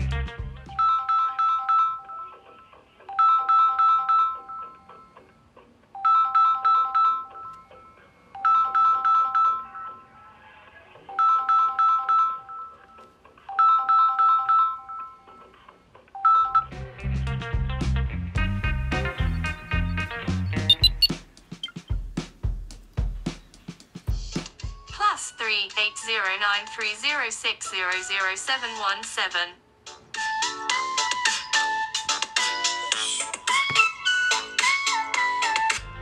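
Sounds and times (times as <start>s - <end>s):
phone ringtone melody: 0.8s - 5.2s, 6.0s - 10.2s, 11.1s - 15.4s, 16.2s - 16.7s, 19.2s - 21.8s.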